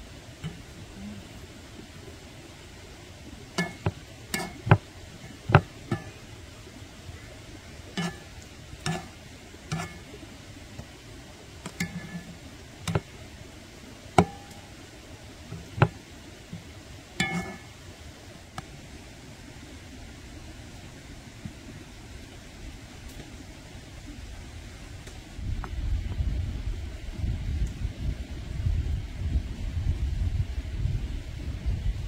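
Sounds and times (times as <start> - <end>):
steady background hiss: 0.0 - 32.0
utensils clinking against pots: 3.6 - 4.8, 8.0 - 8.3, 8.9 - 9.1, 9.7 - 10.1, 11.8 - 12.3, 17.2 - 17.7.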